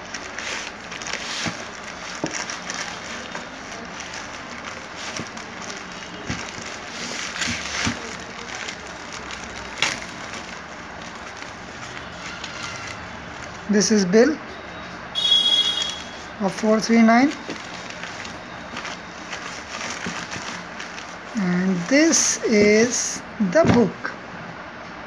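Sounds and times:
plastic cracking: 0.0 - 13.7, 17.2 - 21.4
plastic mailer crinkling: 0.0 - 13.8, 15.2 - 23.0.

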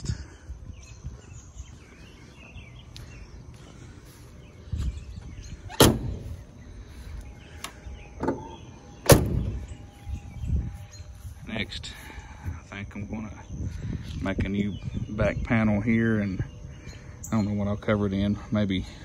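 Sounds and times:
car door shutting thunk: 5.7 - 6.2, 8.2 - 9.6.

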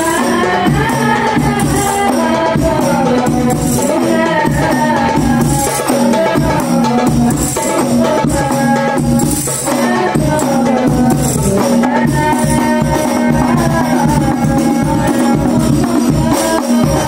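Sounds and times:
frame drums fast rhythm: 0.0 - 17.0
jingling hand drums: 0.0 - 17.0
melismatic chanting: 0.0 - 17.0.

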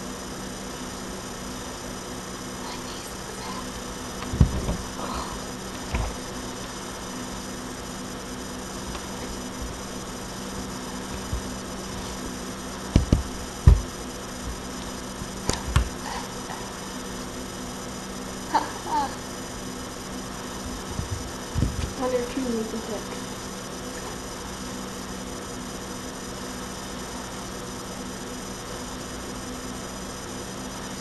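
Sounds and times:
microphone hiss and hum: 2.6 - 24.6
dull knocks: 4.2 - 4.9, 11.1 - 11.6, 12.9 - 14.6, 20.9 - 22.0.

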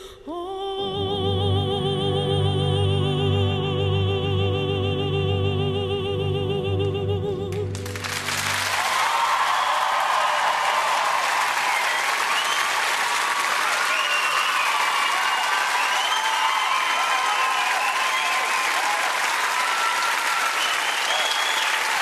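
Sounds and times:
audience applauding and cheering: 7.5 - 22.0.

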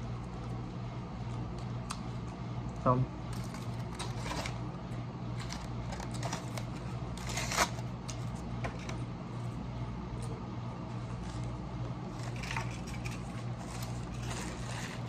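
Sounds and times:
steady low hum: 0.0 - 15.0
aluminum foil crinkling: 3.2 - 4.7, 5.3 - 9.0, 11.0 - 15.0.

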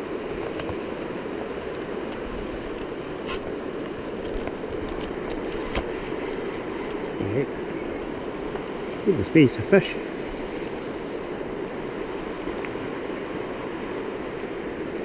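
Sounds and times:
fishing reel clicking and winding: 5.0 - 7.4, 9.8 - 11.5.

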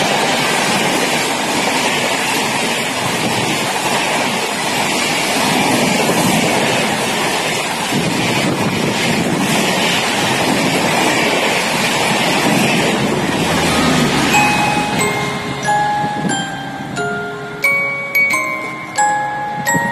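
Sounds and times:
train wheels rushing on rail: 0.0 - 19.9
wind buffeting microphone: 0.0 - 19.9.

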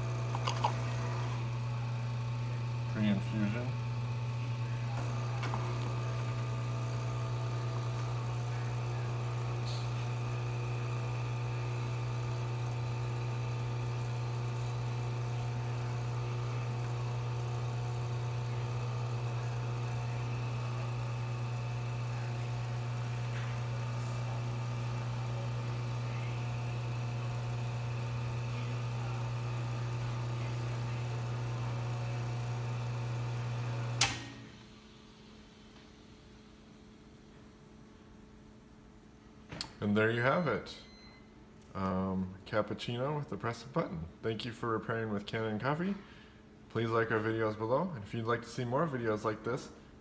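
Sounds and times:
coffee flowing: 0.0 - 34.0
espresso machine pump humming: 0.0 - 35.8.

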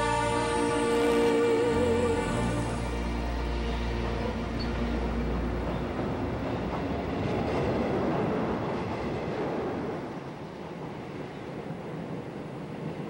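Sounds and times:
background music: 0.0 - 7.3
passing vehicle rumbling: 0.0 - 10.0.

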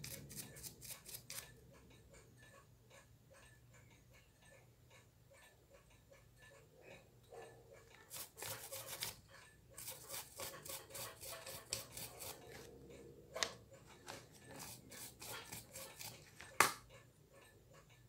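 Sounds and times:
toothbrush scrubbing metal: 0.0 - 1.6, 7.8 - 12.8, 13.5 - 16.5.

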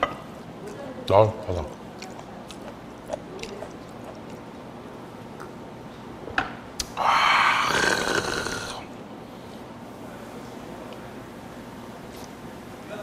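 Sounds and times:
man exhaling loudly: 7.0 - 8.8.

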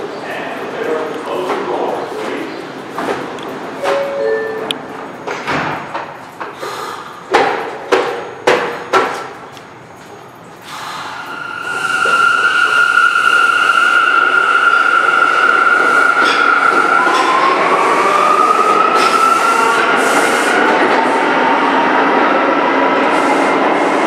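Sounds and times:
train running noise: 0.0 - 24.0
sharp knocks: 7.3 - 9.3.

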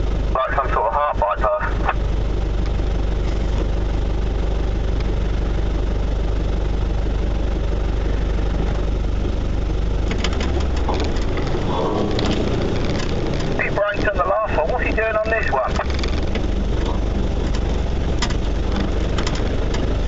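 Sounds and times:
car engine running at low speed: 0.0 - 20.0
short rattles: 10.0 - 13.8, 15.7 - 20.0.

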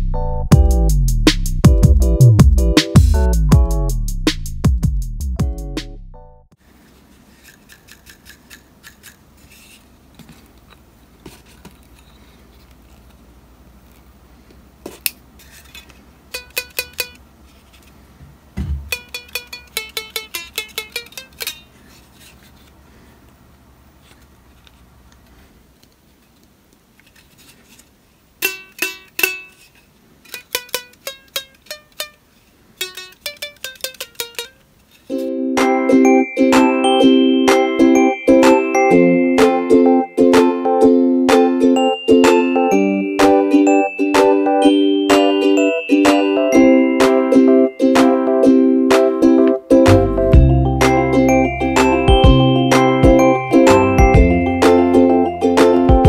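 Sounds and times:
stick guitar string plucked: 18.8 - 21.6, 43.2 - 56.0.

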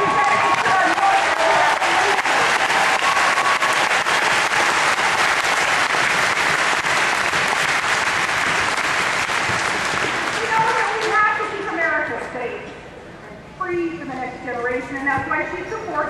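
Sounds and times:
large crowd applauding: 0.0 - 11.2.

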